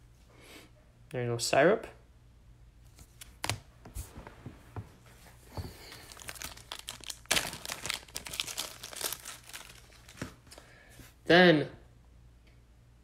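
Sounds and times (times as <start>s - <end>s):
plastic crinkling and rustling: 3.3s - 10.7s.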